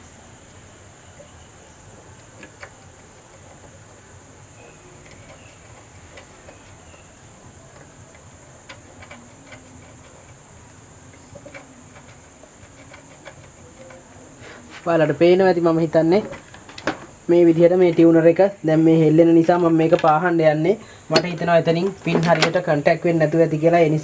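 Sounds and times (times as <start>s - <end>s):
steady high hiss: 0.0s - 24.0s
screwdriver scraping solder joints: 1.1s - 14.7s.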